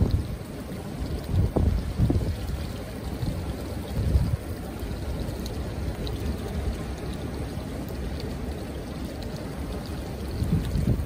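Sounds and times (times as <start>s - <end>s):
wind buffeting microphone: 0.0s - 5.2s, 10.1s - 11.0s
running water: 0.0s - 11.0s.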